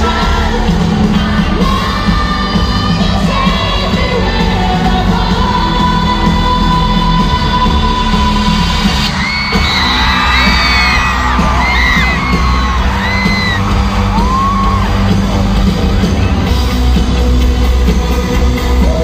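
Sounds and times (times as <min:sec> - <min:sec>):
rock band playing loud: 0:00.0 - 0:19.0
fans screaming: 0:09.0 - 0:16.4.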